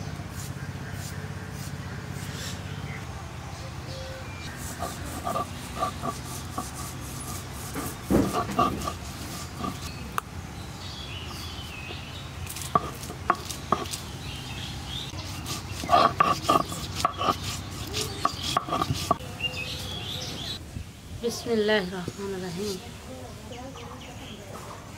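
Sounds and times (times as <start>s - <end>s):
kitchen utensils clicking and scraping: 4.8s - 9.9s, 15.1s - 19.2s.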